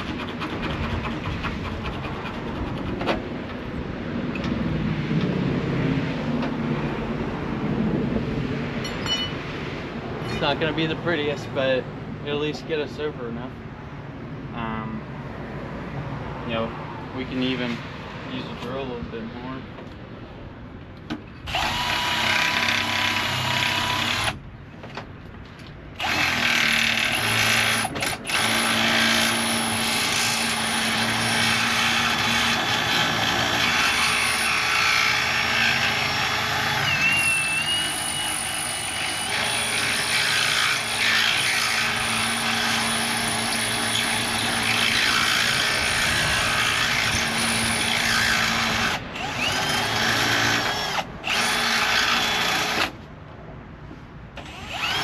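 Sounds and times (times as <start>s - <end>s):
electric drill grinding: 21.5s - 24.4s, 26.0s - 53.0s, 54.4s - 55.0s.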